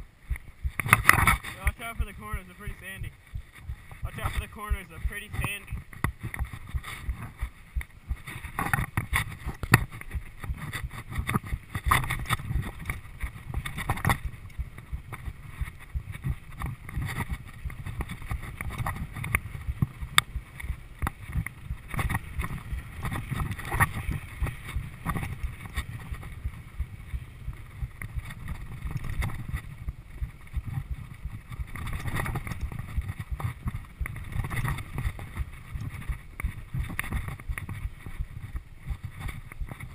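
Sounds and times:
bike clicking and rattling: 0:00.0 - 0:39.9
wind on microphone: 0:00.0 - 0:39.9
tyres rumbling on dirt: 0:00.5 - 0:03.2, 0:03.8 - 0:39.9.

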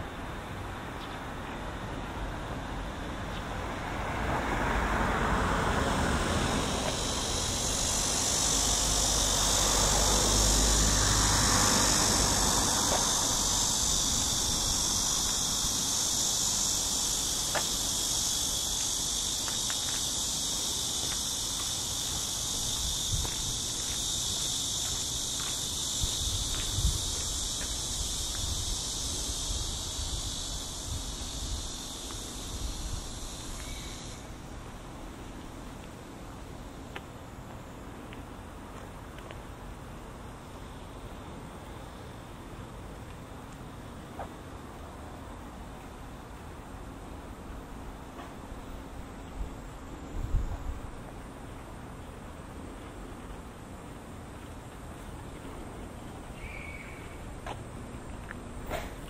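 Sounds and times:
cicadas buzzing: 0:00.0 - 0:59.0
car passing by: 0:02.2 - 0:21.4.

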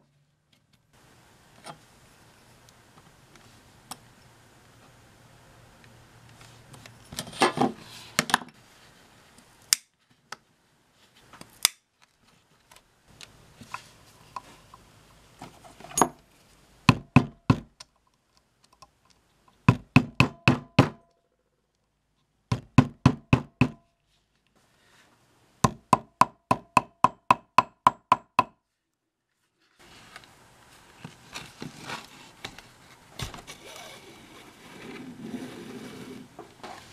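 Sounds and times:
hammer striking steel punch: 0:19.7 - 0:21.0.

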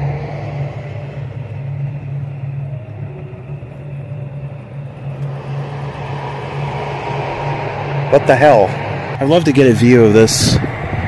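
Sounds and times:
low engine rumble and hum: 0:00.0 - 0:11.0.

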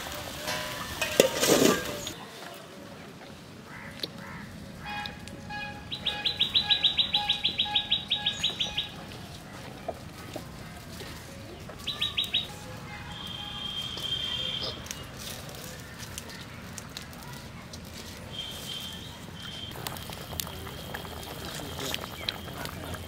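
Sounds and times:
bird calling sharp high notes: 0:04.8 - 0:08.9
thin held bird whistle: 0:13.2 - 0:14.8, 0:18.3 - 0:19.7.

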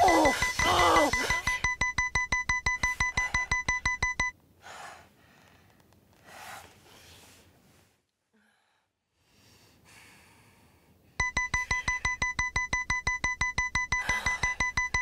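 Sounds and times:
rapid electronic beeping: 0:00.0 - 0:04.3, 0:11.2 - 0:15.0.

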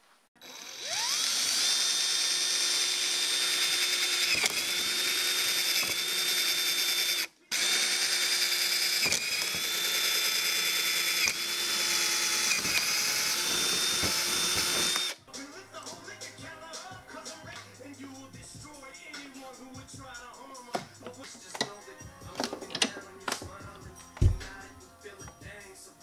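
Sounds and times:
electric drill whining: 0:00.4 - 0:15.2.

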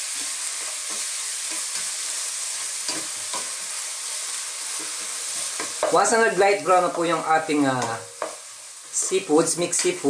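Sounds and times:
food sizzling in oil: 0:00.0 - 0:10.0
spatula scraping and tapping: 0:04.8 - 0:06.0.

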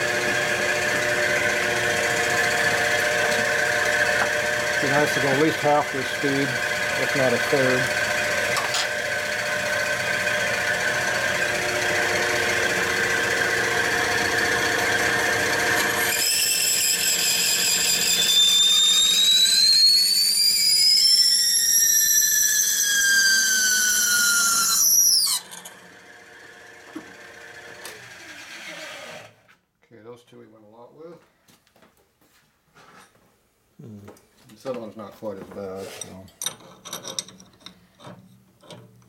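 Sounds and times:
drill press humming: 0:00.0 - 0:19.7, 0:23.4 - 0:29.4
reamer squealing: 0:15.9 - 0:25.7.

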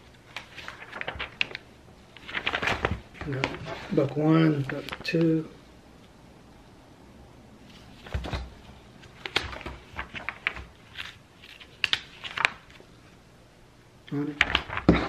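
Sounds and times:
paper pages rustling: 0:00.0 - 0:05.3, 0:07.6 - 0:12.9, 0:14.2 - 0:15.0.

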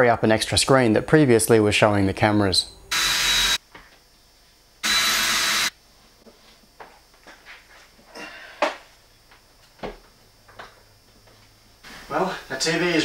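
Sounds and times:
power drill burst: 0:02.9 - 0:03.6, 0:04.8 - 0:05.7.

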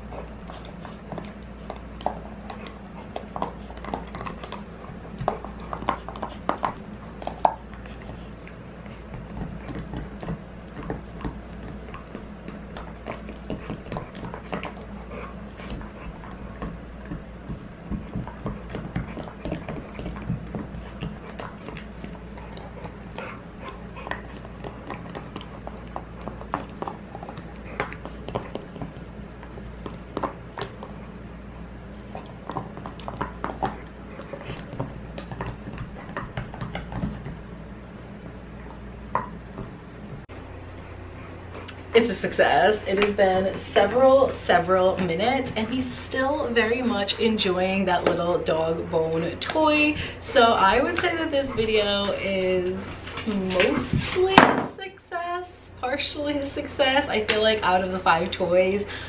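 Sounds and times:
dog teeth gnawing hard bone: 0:00.0 - 0:31.2, 0:31.9 - 0:37.5
steady low hum: 0:00.0 - 0:59.0.

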